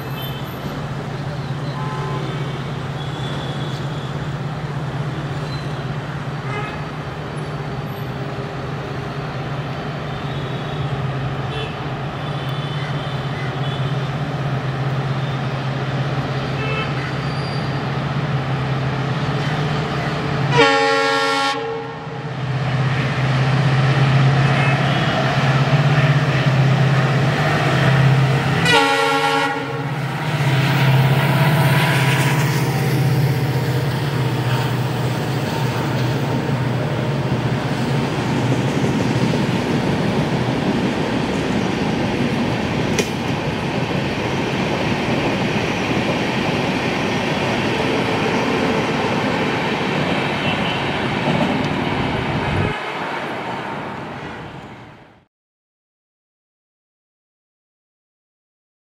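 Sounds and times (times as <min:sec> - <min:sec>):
passenger coaches rolling past: 0:00.0 - 0:55.2
diesel locomotive engine hum: 0:00.0 - 0:55.3
train horn: 0:01.6 - 0:04.2, 0:06.4 - 0:06.9, 0:16.6 - 0:17.2, 0:20.5 - 0:22.3, 0:28.5 - 0:32.6.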